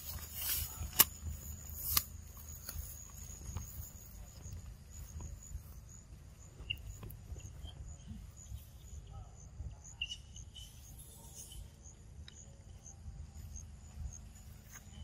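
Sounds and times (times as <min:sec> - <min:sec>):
rustle in leaf litter: 0:00.0 - 0:01.8
insects trilling: 0:00.0 - 0:15.0.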